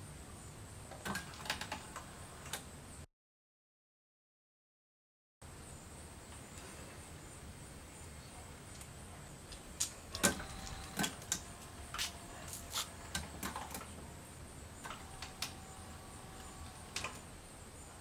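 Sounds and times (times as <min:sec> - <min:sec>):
faint motor whine: 0:05.6 - 0:18.0
mechanical clicks and clunks: 0:10.1 - 0:14.0, 0:14.8 - 0:17.3.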